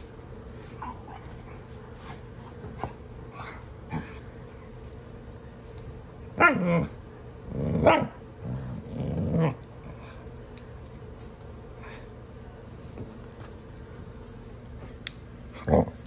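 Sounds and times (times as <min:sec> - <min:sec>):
dog growling and barking: 0:06.4 - 0:09.7, 0:15.6 - 0:16.0.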